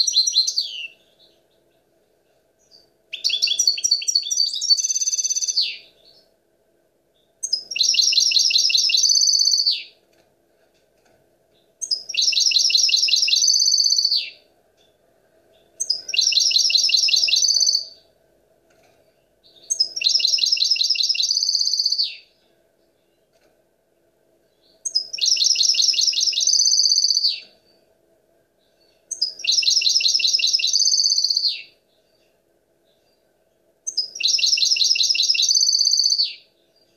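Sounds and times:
goldfinch singing: 0:00.0 - 0:01.4, 0:02.6 - 0:06.2, 0:11.8 - 0:14.4, 0:15.6 - 0:18.0, 0:29.1 - 0:31.7, 0:33.9 - 0:36.4.

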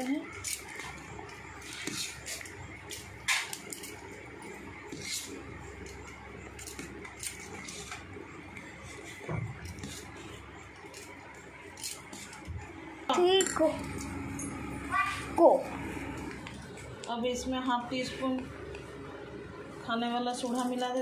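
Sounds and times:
spoon stirring batter in bowl: 0:00.5 - 0:12.5.

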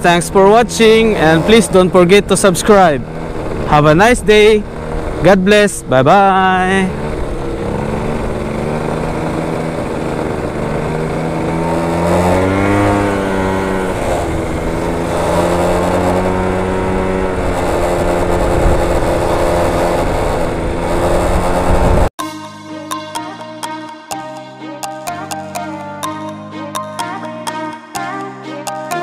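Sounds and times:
motorcycle engine running: 0:00.0 - 0:22.1
wind rushing over microphone: 0:01.0 - 0:22.1
music: 0:22.2 - 0:29.0.

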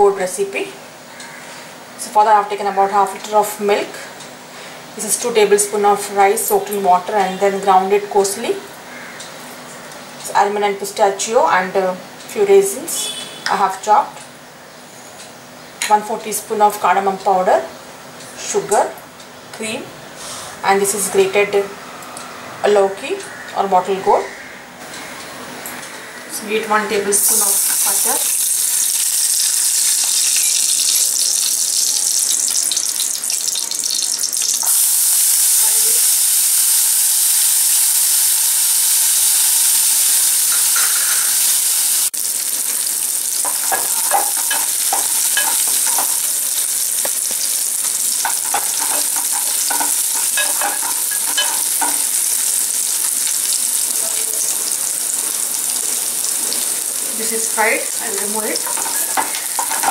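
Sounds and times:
butter sizzling in a pan: 0:27.1 - 0:59.9
spoon scraping a pan: 0:40.4 - 0:41.6, 0:43.4 - 0:53.6, 0:58.2 - 0:59.9.

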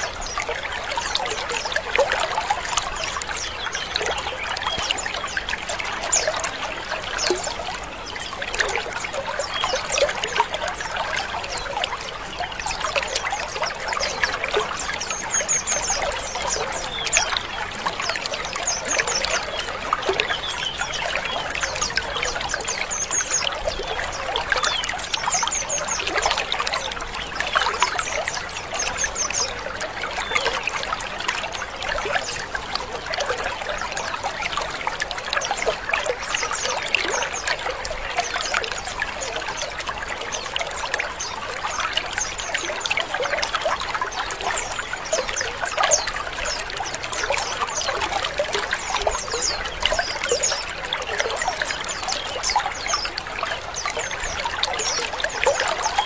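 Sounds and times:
birds chirping and twittering: 0:00.0 - 0:56.0.

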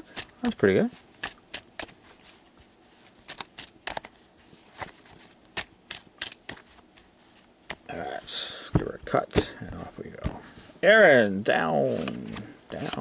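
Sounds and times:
playing cards shuffled: 0:00.0 - 0:07.9, 0:11.9 - 0:13.0.

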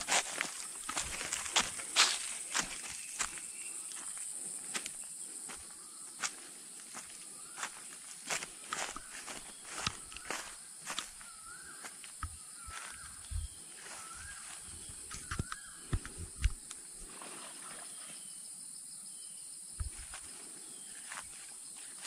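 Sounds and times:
footsteps: 0:00.0 - 0:11.2, 0:19.8 - 0:20.4
insects droning: 0:00.0 - 0:22.0
warbling bird calls: 0:08.6 - 0:16.6.

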